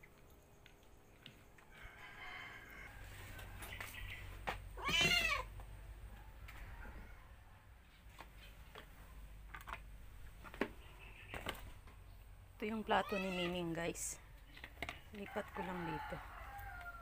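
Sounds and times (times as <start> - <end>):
cat meowing: 4.8 - 5.5.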